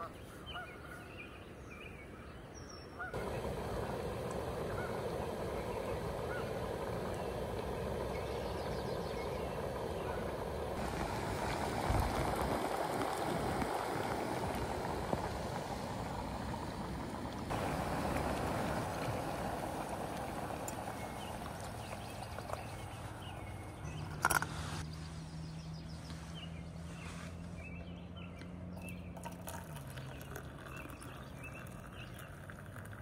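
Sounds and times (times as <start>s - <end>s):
gas stove burner rushing: 3.2s - 22.6s.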